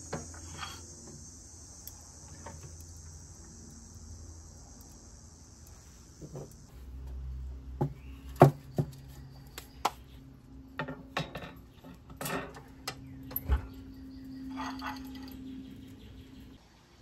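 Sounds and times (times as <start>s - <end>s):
metal grill grate clanking: 10.8s - 13.8s.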